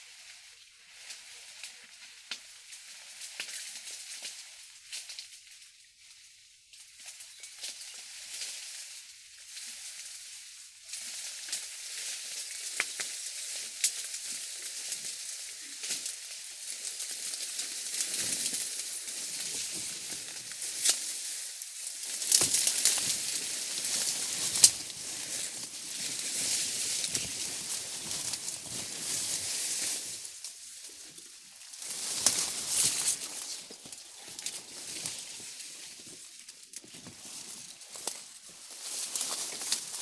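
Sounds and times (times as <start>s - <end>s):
dry reeds rustling and crackling: 0.0s - 40.0s
stalks cracking: 16.8s - 30.8s, 31.6s - 35.7s.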